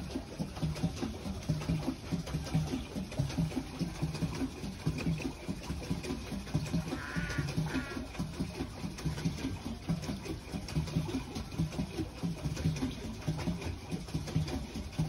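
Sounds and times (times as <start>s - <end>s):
pedal boat paddle wheel thumping: 0.0s - 15.0s.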